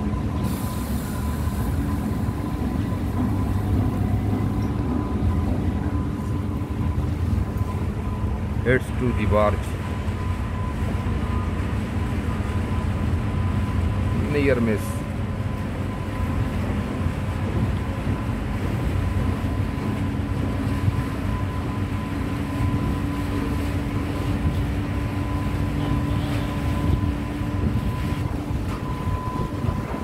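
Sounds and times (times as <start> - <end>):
boat engine rumbling: 0.0 - 30.0
wind on microphone: 16.8 - 30.0.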